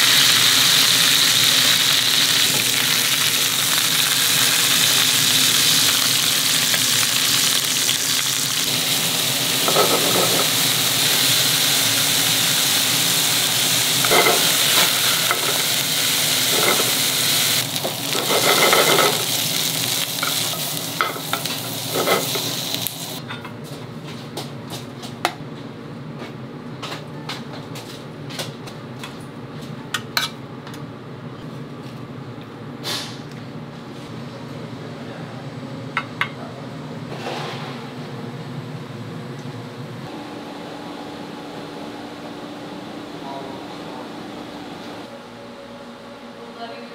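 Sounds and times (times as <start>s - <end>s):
food sizzling in a pan: 0.0s - 23.2s
scrapes or stirs in a pan: 18.2s - 19.2s.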